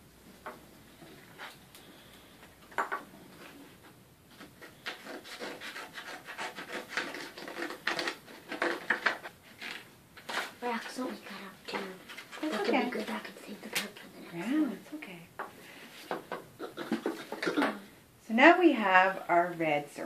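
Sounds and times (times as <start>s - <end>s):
scissors cutting stiff paper: 4.6s - 10.6s.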